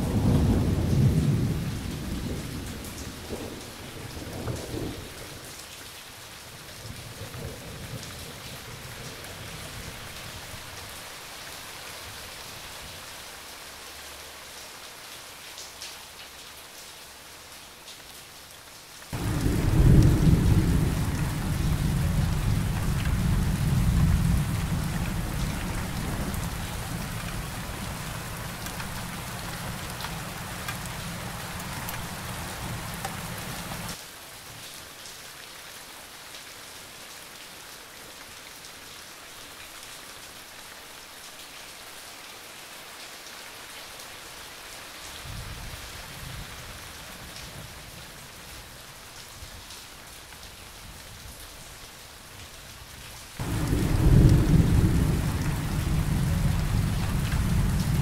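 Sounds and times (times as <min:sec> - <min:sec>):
steady rain: 0:00.0 - 0:58.0
thunder rumbling: 0:19.2 - 0:34.0, 0:53.4 - 0:58.0.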